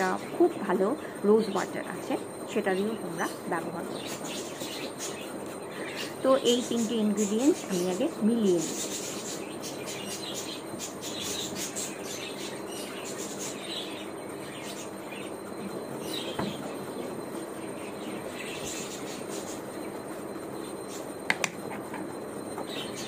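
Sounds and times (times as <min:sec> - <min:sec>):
birds chirping: 0:00.0 - 0:23.0
room hum: 0:00.0 - 0:23.0.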